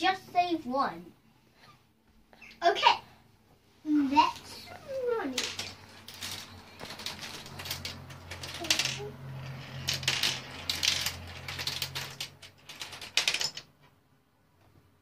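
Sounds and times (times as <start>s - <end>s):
marbles clicking and clattering: 4.3s - 13.7s.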